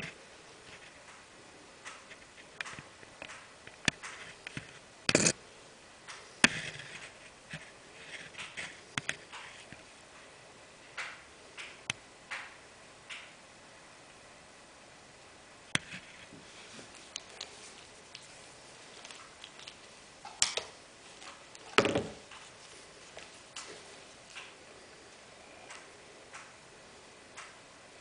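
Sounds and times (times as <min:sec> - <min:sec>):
sharp clicks: 0:25.6 - 0:26.6, 0:27.3 - 0:27.6.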